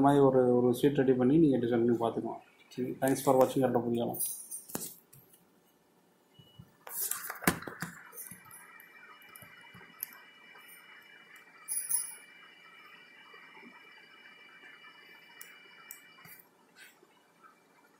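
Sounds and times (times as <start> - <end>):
faint high whine: 5.6 - 17.9.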